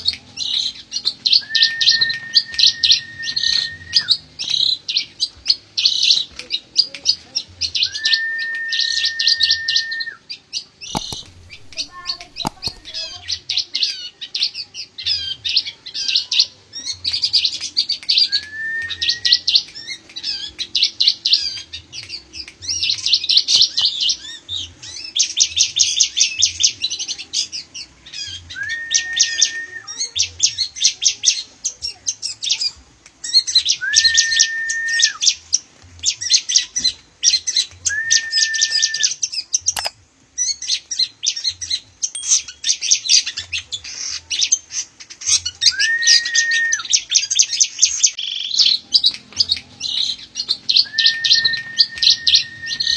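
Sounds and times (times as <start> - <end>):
birds chirping trills: 0.0 - 52.9
whistled bird notes: 0.0 - 52.9
sharp click: 10.9 - 13.0, 39.7 - 40.0.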